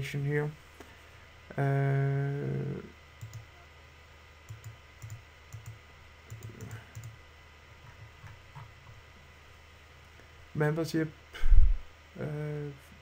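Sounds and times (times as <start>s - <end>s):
man humming: 1.6s - 2.9s
computer mouse clicks: 3.2s - 3.5s, 4.5s - 7.2s.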